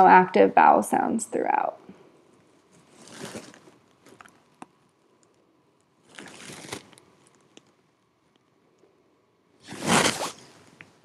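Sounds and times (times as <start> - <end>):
clothing rustling: 2.2 - 4.6, 6.0 - 7.8, 9.6 - 10.8.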